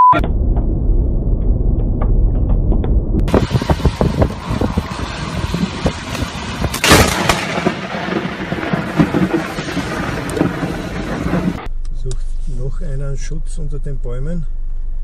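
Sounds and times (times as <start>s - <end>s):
thunder crack and rumble: 0.2s - 11.7s
vehicle road and wind noise: 0.2s - 15.0s.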